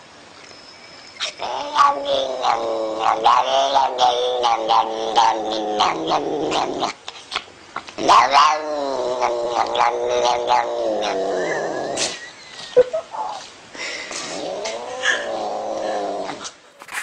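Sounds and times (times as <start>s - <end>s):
cat yowling: 1.2s - 7.0s, 8.0s - 11.9s, 14.5s - 16.4s.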